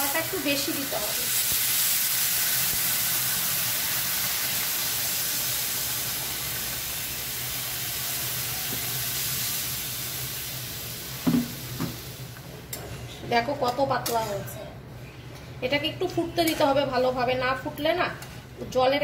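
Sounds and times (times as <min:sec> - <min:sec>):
hissing and sizzling pan: 0:00.0 - 0:12.5.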